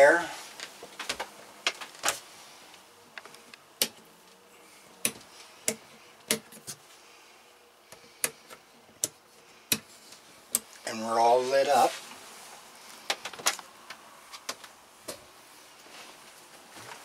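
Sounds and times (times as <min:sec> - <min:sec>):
rocker switches clicking: 0:03.5 - 0:04.0.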